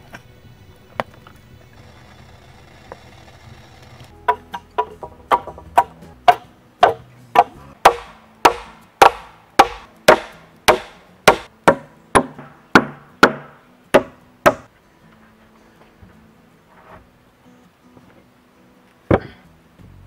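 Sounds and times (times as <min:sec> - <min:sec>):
hatchet hammering nails into wood: 0:04.3 - 0:14.7.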